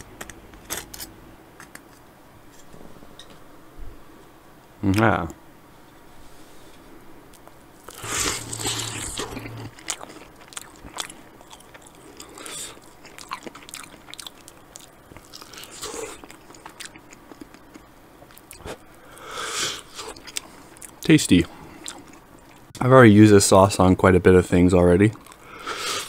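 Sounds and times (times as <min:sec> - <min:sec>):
person eating chicken wing: 0:07.8 - 0:18.8, 0:21.8 - 0:22.6.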